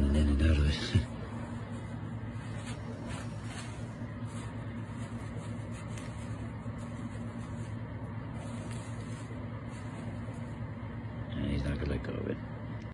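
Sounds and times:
low mechanical hum: 0.0s - 12.9s
faint rustles: 1.0s - 10.9s.

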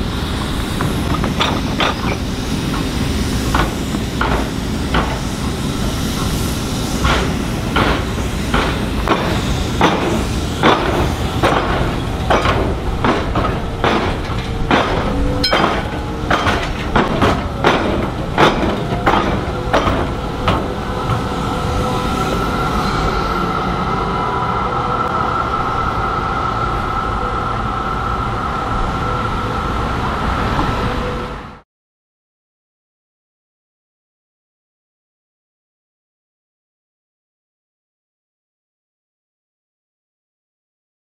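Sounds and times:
tram running rumble and whine: 0.0s - 31.6s
tram wheels knocking over crossing: 7.0s - 21.3s.

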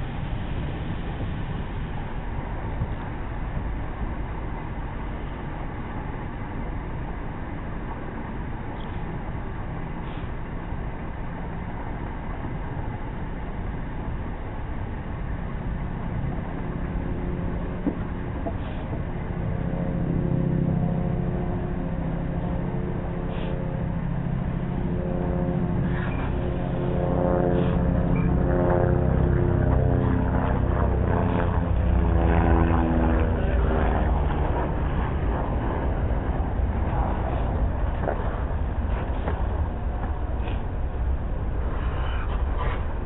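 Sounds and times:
diesel engine drone: 0.0s - 43.0s
train wheels rumbling on rail: 33.7s - 43.0s.

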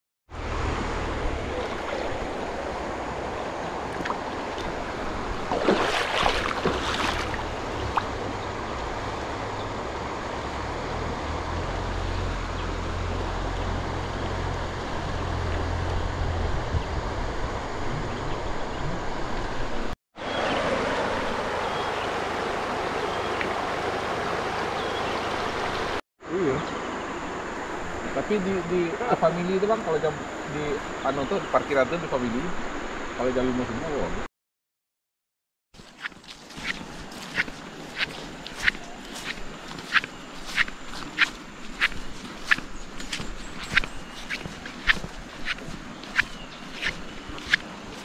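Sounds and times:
river flowing over stones: 0.4s - 15.8s, 20.2s - 26.0s, 35.8s - 48.0s
rocky stream flowing: 0.4s - 16.1s, 20.2s - 26.0s, 35.8s - 48.0s
wind on microphone: 13.2s - 19.9s.

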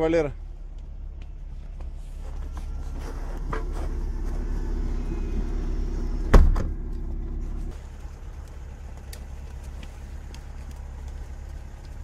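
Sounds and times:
car engine running: 2.2s - 12.0s
tailgate slamming shut: 6.3s - 6.8s.

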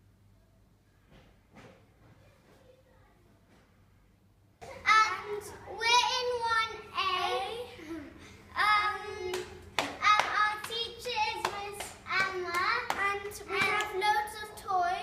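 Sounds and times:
hand claps: 9.2s - 14.0s.

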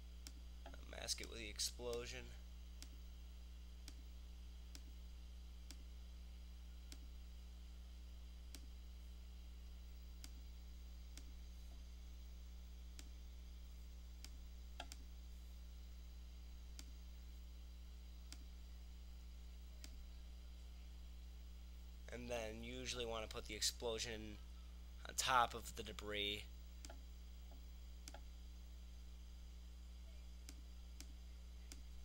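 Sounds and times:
low electrical hum: 0.0s - 32.0s.

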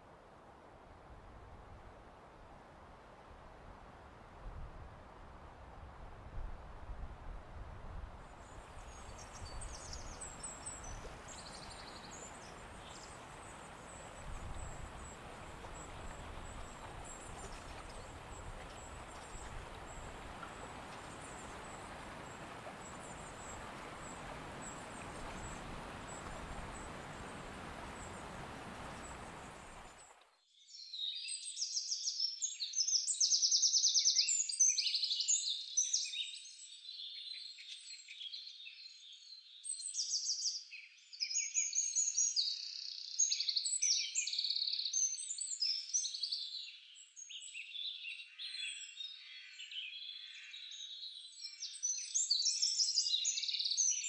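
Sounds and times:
outdoor background noise: 0.0s - 30.5s
faint bird chirps: 8.4s - 54.0s
many birds chirping: 8.5s - 30.1s.

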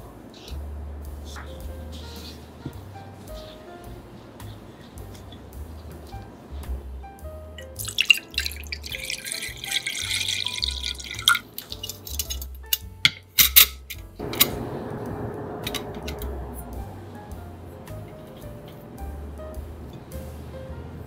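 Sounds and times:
quiet background music: 0.0s - 21.0s
water pouring into a pot: 7.8s - 12.5s
steamer plate clinking: 7.8s - 18.9s.

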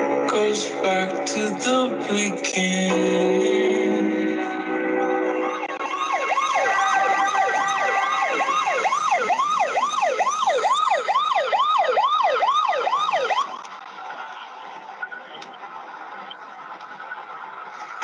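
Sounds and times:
siren yelping: 3.0s - 13.6s.

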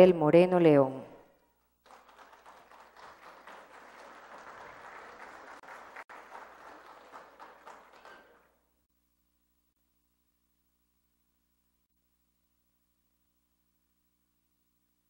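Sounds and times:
faint audience applause: 1.8s - 8.6s.

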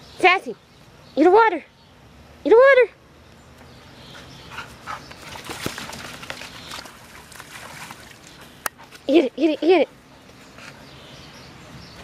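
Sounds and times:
dog splashing in water: 4.9s - 8.9s.

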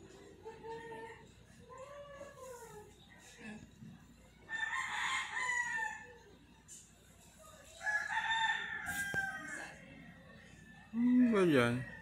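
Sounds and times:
rooster crowing: 4.5s - 6.2s, 7.8s - 9.8s.

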